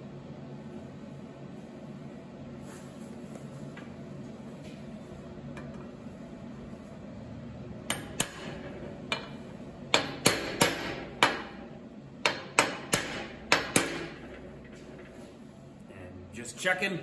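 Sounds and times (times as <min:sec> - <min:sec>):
hammer tapping on metal: 0:07.9 - 0:11.6, 0:12.2 - 0:14.4.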